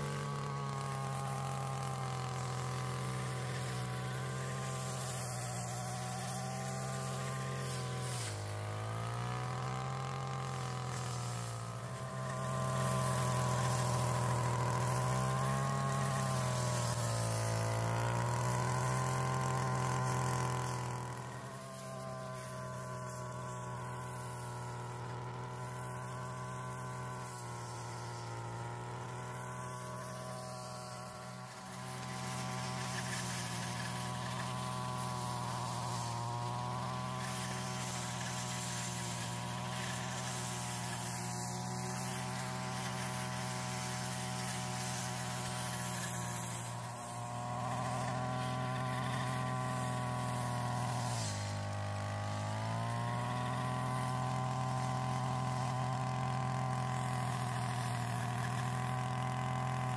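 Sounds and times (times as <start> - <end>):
brush cutter buzzing drone: 0.0 - 59.9.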